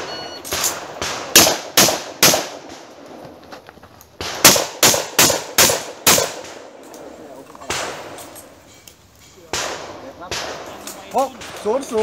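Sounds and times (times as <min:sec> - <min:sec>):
shotgun shots: 0:00.0 - 0:02.9, 0:04.2 - 0:06.8, 0:07.6 - 0:08.2, 0:09.5 - 0:12.0.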